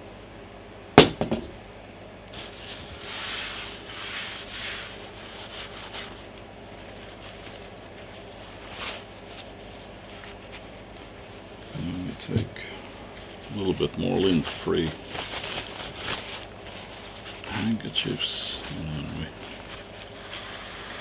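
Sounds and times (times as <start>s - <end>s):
spray can knocking on table: 1.0s - 1.6s
paper tissues rustling on table: 2.3s - 21.0s.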